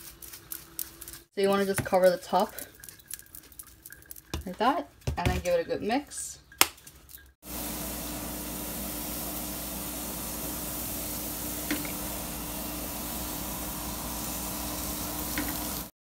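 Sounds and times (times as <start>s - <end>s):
grill hissing: 7.4s - 16.0s.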